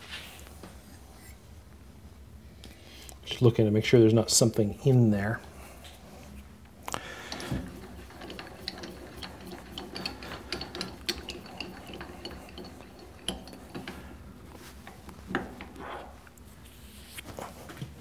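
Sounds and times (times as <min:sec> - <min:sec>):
metallic clicks of lathe handwheel: 0:07.3 - 0:14.1.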